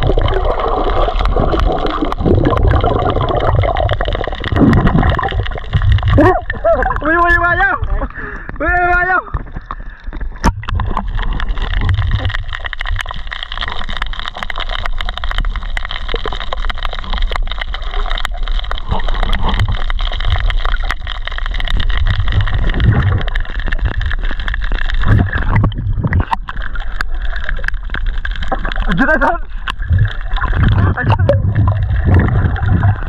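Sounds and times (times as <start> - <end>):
crackling clicks: 0.0 - 8.6, 9.2 - 33.0.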